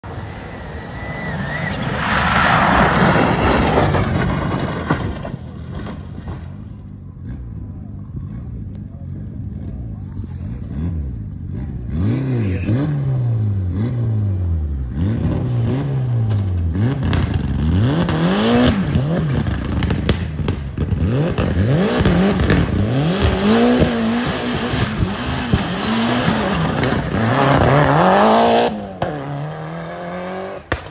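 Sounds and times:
rally car engine revving: 0.0 - 30.9
sharp engine pops: 30.6 - 30.9.

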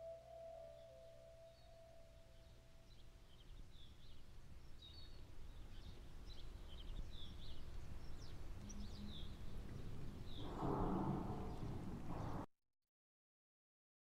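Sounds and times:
small birds chirping: 0.0 - 12.4
low rumble: 8.6 - 12.5.

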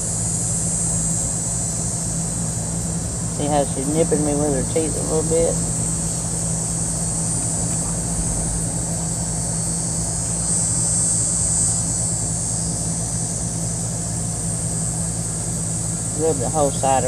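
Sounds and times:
high buzzing: 0.0 - 17.0
low machine hum: 0.0 - 17.0.

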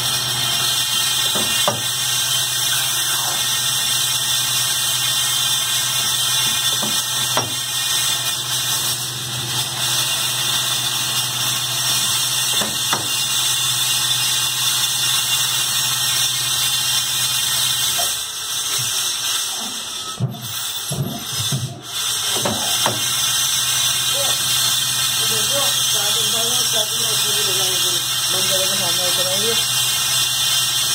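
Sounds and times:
lathe machining metal: 0.0 - 30.9
short squeaks and knocks: 1.2 - 2.0, 6.4 - 7.7, 12.5 - 13.3.

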